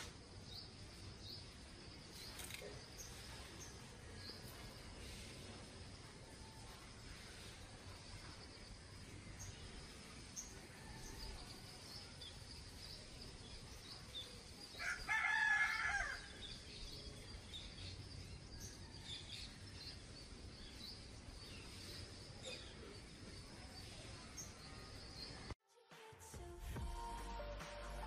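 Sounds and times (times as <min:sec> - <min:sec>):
small birds chirping: 0:00.0 - 0:25.6
rooster crowing: 0:14.8 - 0:16.4.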